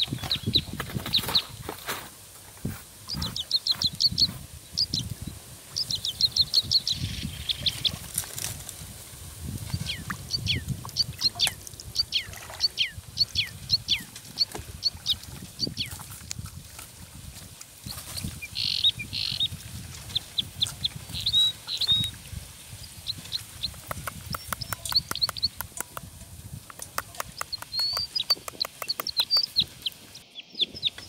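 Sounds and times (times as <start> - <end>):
birds chirping: 3.1 - 8.0, 9.7 - 16.0, 17.9 - 26.0, 26.6 - 31.0
fire crackling and popping: 23.6 - 29.8.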